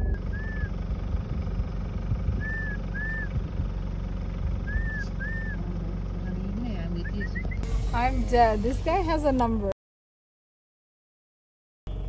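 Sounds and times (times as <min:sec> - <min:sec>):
vehicle rumbling on dirt road: 0:00.0 - 0:09.8.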